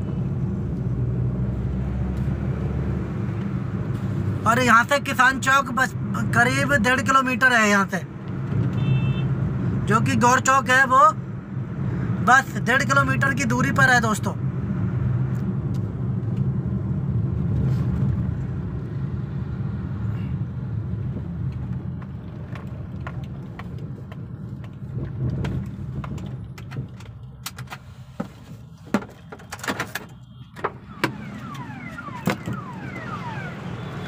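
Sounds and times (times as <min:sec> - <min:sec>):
motorbike engine and road noise: 0:14.4 - 0:34.0
sharp clicks and knocks: 0:21.5 - 0:28.3.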